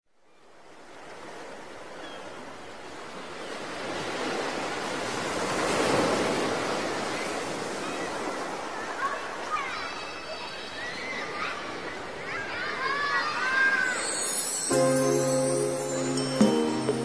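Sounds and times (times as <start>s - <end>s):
ocean surf rushing: 13.3s - 17.0s.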